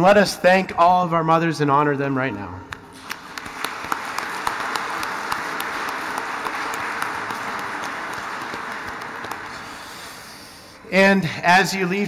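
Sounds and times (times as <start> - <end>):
crowd clapping: 2.8 - 10.6.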